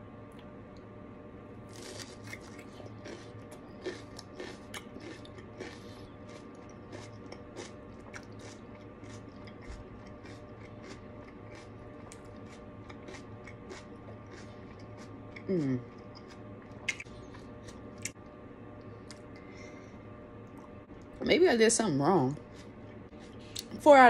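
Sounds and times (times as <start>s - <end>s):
crunching raw pepper: 1.7s - 18.2s.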